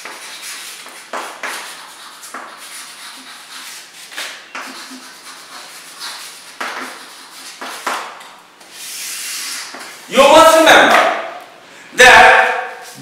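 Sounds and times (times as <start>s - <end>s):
chalk scratching on chalkboard: 0.0s - 10.1s.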